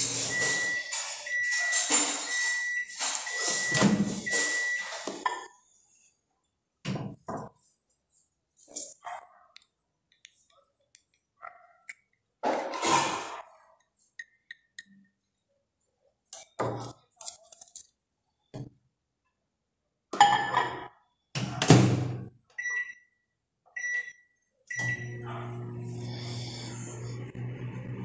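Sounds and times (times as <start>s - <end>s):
microwave keypad beeps: 0.3s - 5.0s, 22.6s - 23.2s, 23.8s - 25.2s.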